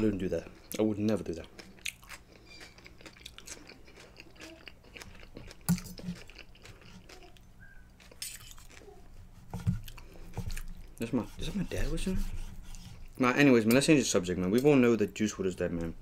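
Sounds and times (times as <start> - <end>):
chewing food: 0.4 - 11.1.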